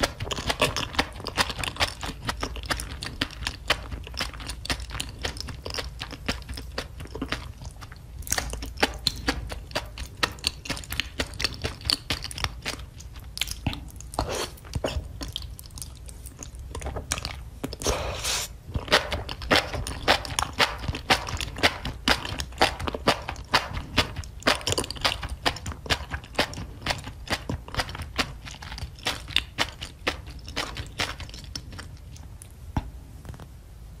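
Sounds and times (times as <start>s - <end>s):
wet chewing: 0.0s - 32.6s
slurp: 14.2s - 15.0s, 17.8s - 18.6s.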